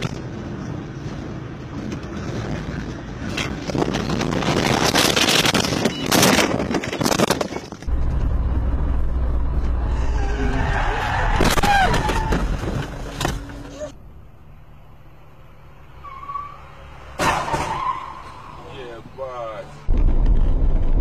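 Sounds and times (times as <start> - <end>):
road and engine noise in car: 0.0 - 21.0
debris striking car: 11.2 - 13.5.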